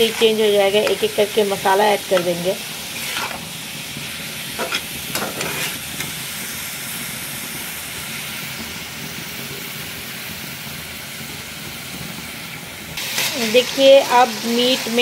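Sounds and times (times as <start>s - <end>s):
steel spatula scraping a pan: 0.0s - 1.3s, 2.2s - 3.5s, 4.6s - 6.2s
meat sizzling in a frying pan: 0.0s - 15.0s.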